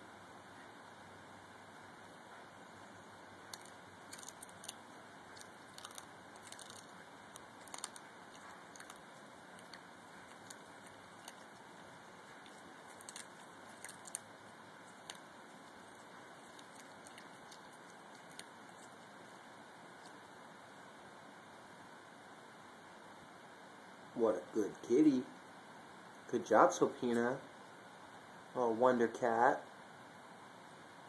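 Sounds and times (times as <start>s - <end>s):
faint steady hiss: 0.0s - 31.0s
cat chewing crunches: 3.4s - 20.5s.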